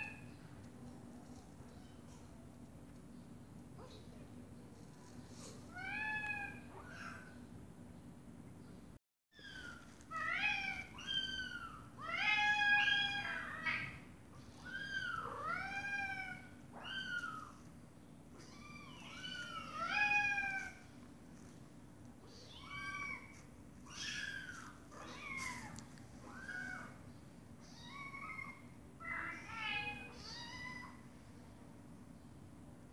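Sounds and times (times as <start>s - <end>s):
kittens meowing: 9.4s - 17.6s, 18.4s - 20.9s, 22.2s - 27.0s, 27.6s - 31.0s.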